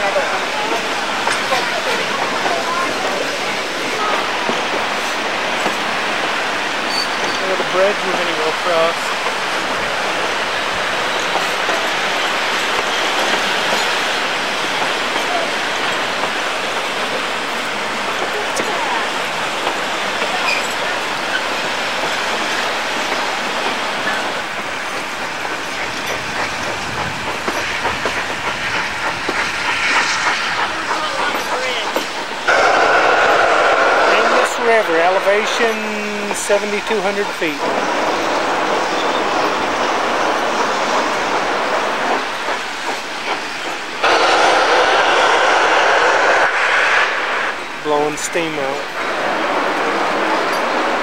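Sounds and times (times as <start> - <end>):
steam locomotive hissing: 0.0 - 51.0
train wheels rumbling on rails: 0.0 - 51.0
wheels clicking over rail joints: 19.6 - 29.8.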